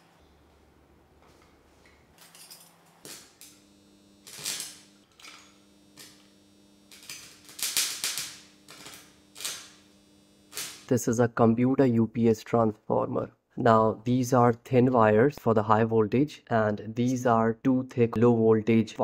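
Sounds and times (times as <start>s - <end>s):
faint steady hum: 0.0s - 14.9s
welding arc crackling: 3.0s - 10.9s.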